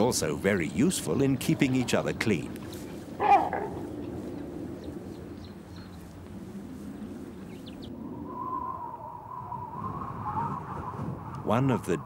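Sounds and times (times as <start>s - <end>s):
outdoor ambience: 0.0s - 12.0s
animal call falling pitch: 8.2s - 11.3s.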